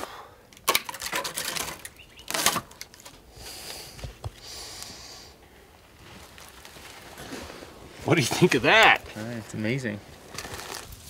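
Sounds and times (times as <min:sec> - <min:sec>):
rope rustling and scraping: 0:05.7 - 0:11.0.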